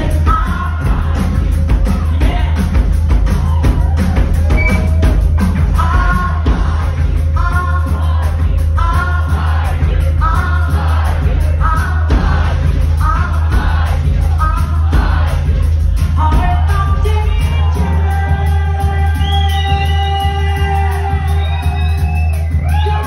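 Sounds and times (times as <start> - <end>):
woman singing into a microphone: 0.0 - 2.9, 5.7 - 12.3, 16.2 - 21.8
drum kit: 0.0 - 23.0
heavy bass: 0.0 - 23.0.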